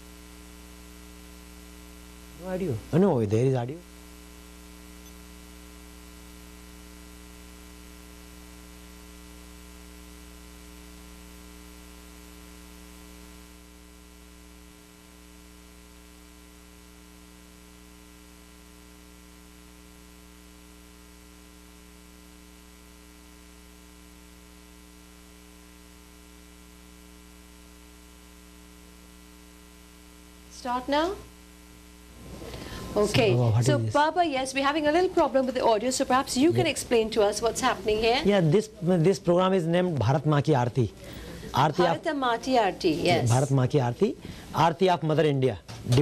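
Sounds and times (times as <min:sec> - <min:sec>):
buzzy electrical mains hum: 0:00.0 - 0:46.0
faint hiss: 0:19.5 - 0:46.0.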